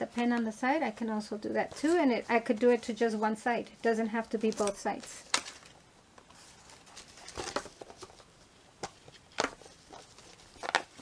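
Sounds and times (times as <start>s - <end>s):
rustling against cardboard folder: 1.3s - 11.0s.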